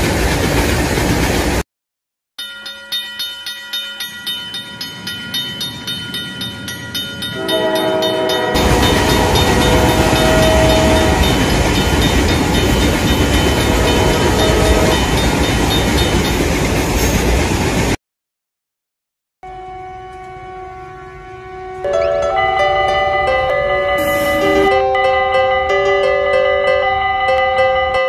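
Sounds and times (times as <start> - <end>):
train rumble and rail clatter: 0.0 - 1.6, 3.9 - 18.0, 20.0 - 28.0
level-crossing bell ringing: 2.4 - 16.4, 21.6 - 28.0
train horn: 7.4 - 11.6, 13.4 - 15.1, 19.5 - 22.8, 23.4 - 25.0.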